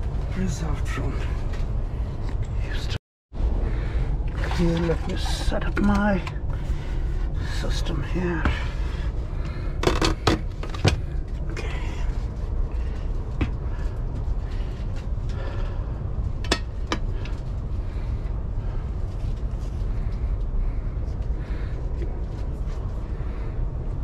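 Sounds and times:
train coach low hum: 0.0 - 24.0.

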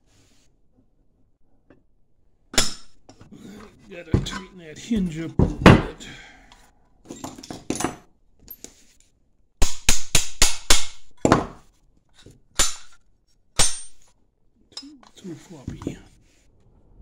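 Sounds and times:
metal clinks and knocks: 7.1 - 8.7.

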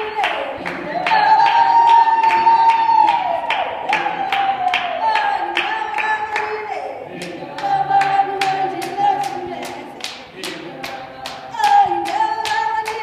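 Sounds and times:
women singing unaccompanied: 0.0 - 3.1, 3.9 - 13.0
hand claps: 0.2 - 6.6, 7.2 - 13.0.

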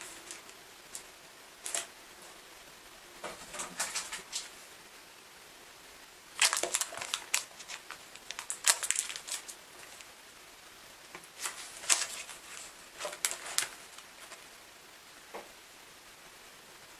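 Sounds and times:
crinkly plastic rustling: 0.0 - 2.4, 3.2 - 4.6, 6.3 - 10.2, 11.1 - 14.6.

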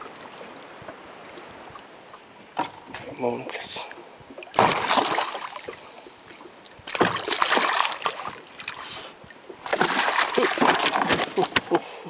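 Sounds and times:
fish splashing in water: 4.6 - 6.0, 6.9 - 8.8, 9.6 - 11.5.

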